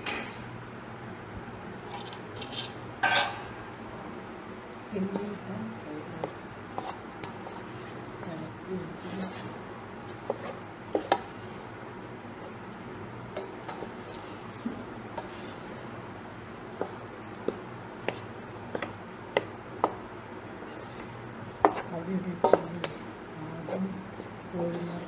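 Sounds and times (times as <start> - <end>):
spatula scraping a pan: 6.2 - 8.1, 9.0 - 11.5, 12.4 - 16.0, 20.5 - 25.0.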